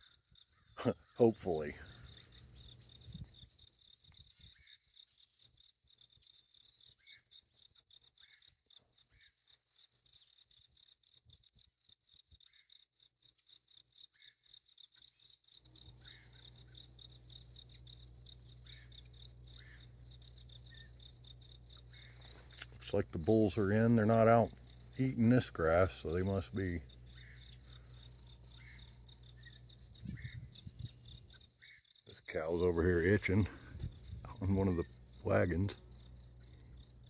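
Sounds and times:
insects trilling: 0.0s - 37.0s.

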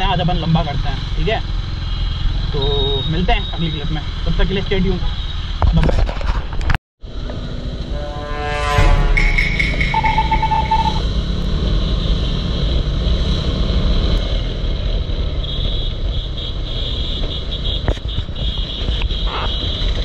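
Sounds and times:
motorcycle engine: 7.4s - 15.0s
brief steady tone: 7.8s - 11.0s.

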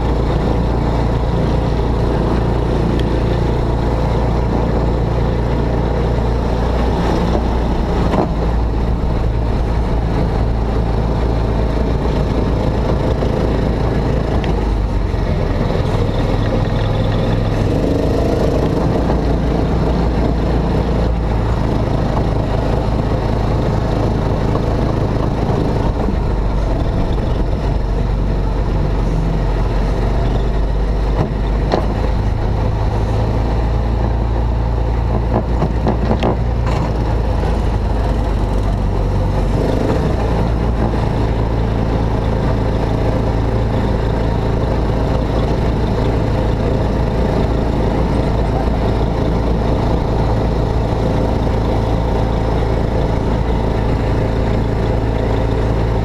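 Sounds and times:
ride car engine drone: 0.0s - 56.0s.

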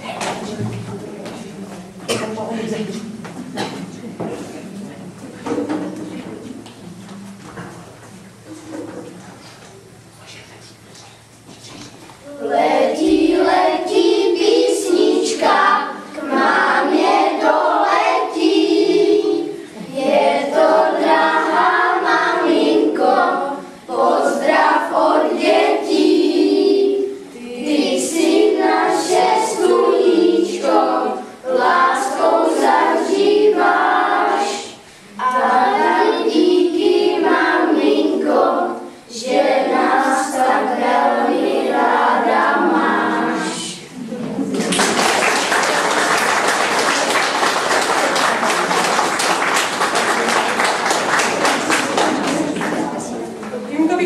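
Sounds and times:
children and woman singing: 12.3s - 43.9s.

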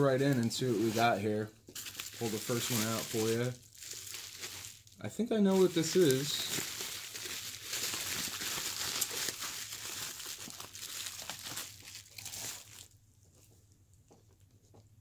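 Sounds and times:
bubble wrap crinkling: 0.0s - 13.5s.

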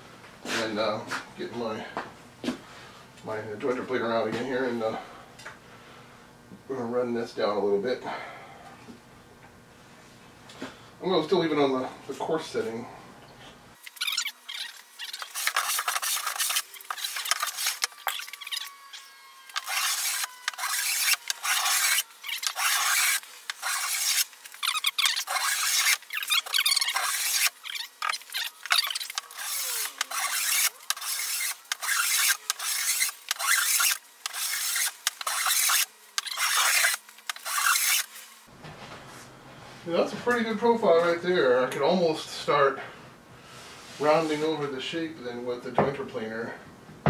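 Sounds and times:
hand plane scraping wood: 19.5s - 27.5s, 29.1s - 38.1s.

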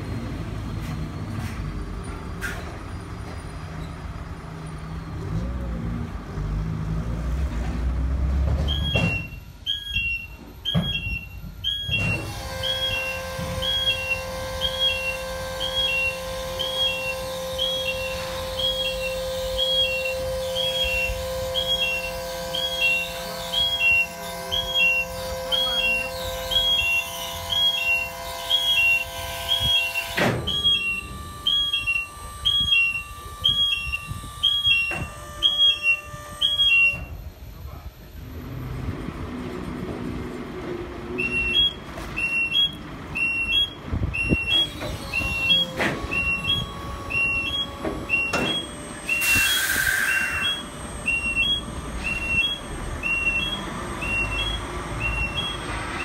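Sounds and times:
lorry engine rumbling: 0.0s - 56.0s
two-note electronic warning beep: 8.7s - 37.2s, 41.2s - 56.0s.

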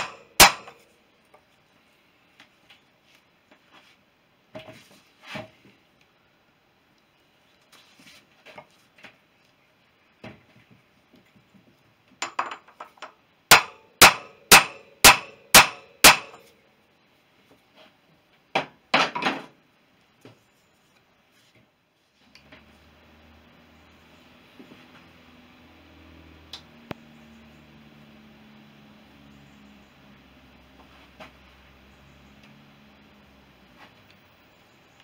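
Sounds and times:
hammer striking metal: 0.0s - 0.8s, 13.5s - 16.5s.

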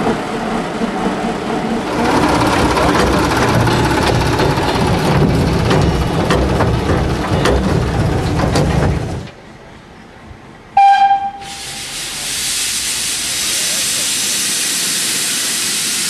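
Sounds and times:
steam locomotive clatter and rumble: 0.0s - 10.6s, 11.4s - 16.0s
steam whistle blast: 10.8s - 12.0s
steam hissing: 11.4s - 16.0s.

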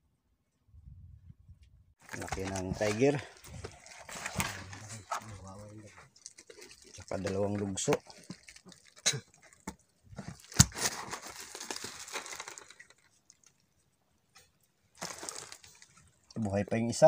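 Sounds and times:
rustling and scraping: 2.0s - 13.0s.

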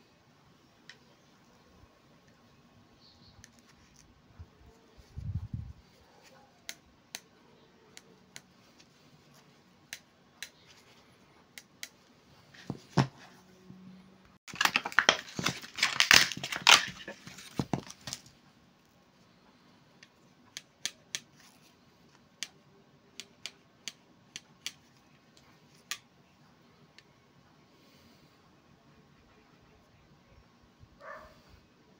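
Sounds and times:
plastic wrapping crinkling: 14.5s - 18.3s.

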